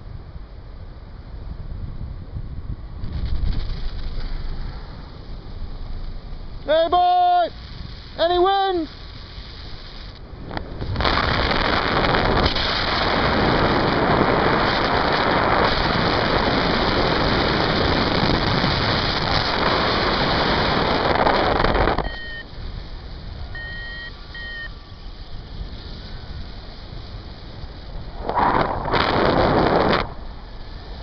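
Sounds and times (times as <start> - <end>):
wind rushing over microphone: 0.0 - 31.0
short high beeps: 22.0 - 22.5, 23.6 - 24.7.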